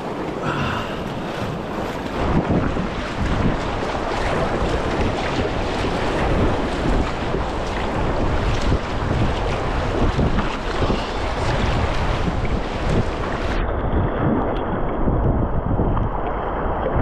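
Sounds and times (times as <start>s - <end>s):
whitewater rushing: 0.0s - 13.6s
wind noise on microphone: 0.0s - 17.0s.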